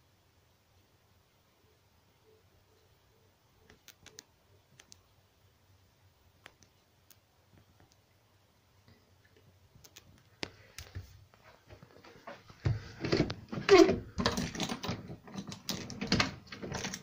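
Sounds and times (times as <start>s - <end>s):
faint sharp clicks: 3.6s - 5.1s, 6.4s - 8.1s, 8.8s - 11.0s.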